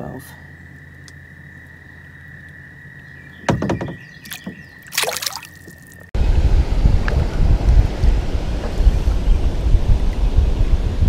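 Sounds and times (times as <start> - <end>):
fish splashing in water: 4.2 - 6.1.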